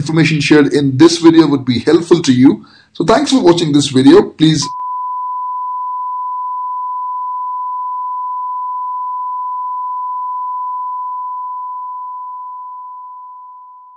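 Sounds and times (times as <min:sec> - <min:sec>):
steady pure test tone: 0:04.2 - 0:13.9.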